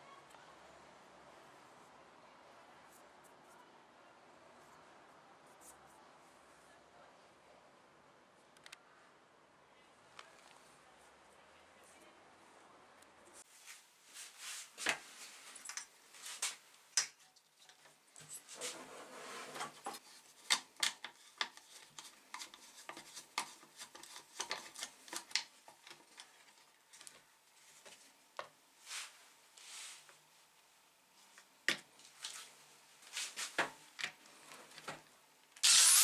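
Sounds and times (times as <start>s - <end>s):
screwdriver scraping plastic: 35.6s - 36.0s.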